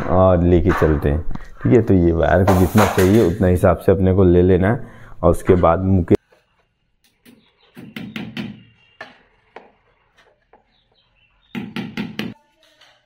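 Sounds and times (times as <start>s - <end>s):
hammer blows on nails: 7.2s - 9.7s.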